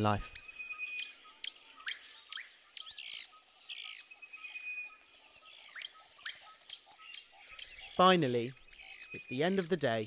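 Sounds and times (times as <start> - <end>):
falling whistled bird calls: 0.0 - 10.0
insect trill: 2.0 - 10.0.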